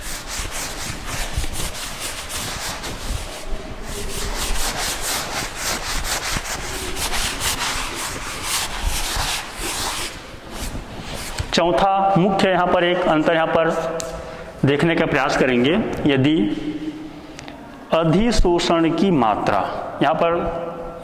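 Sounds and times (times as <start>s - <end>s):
duster rubbing on blackboard: 0.0s - 11.5s.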